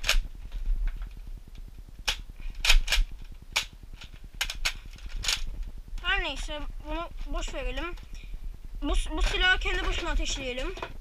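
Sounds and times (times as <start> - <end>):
plastic toy blaster clicks: 2.1 - 5.5.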